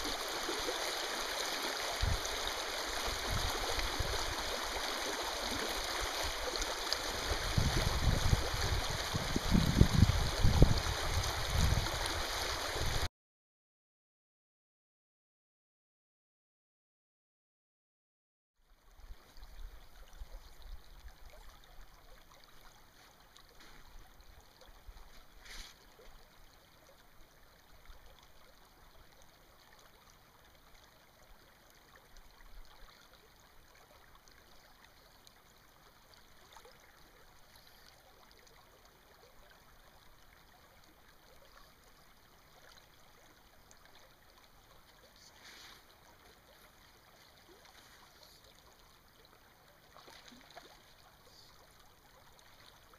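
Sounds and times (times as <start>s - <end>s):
small stream flowing: 0.0s - 13.1s, 18.6s - 52.9s
soft hisses: 25.3s - 25.8s, 45.1s - 46.1s.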